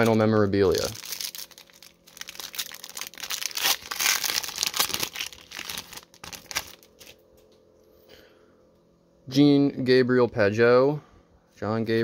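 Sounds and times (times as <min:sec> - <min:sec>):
foil wrapper tearing and crinkling: 0:00.0 - 0:07.2.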